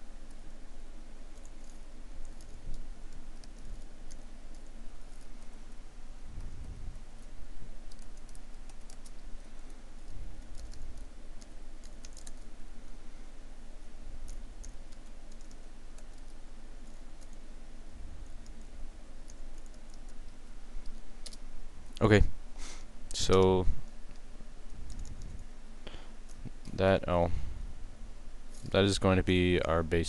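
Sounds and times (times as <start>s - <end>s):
steady low hum: 0.0s - 30.0s
computer keyboard keys clicking: 1.3s - 5.6s, 7.2s - 12.5s, 14.2s - 16.4s, 24.9s - 25.4s.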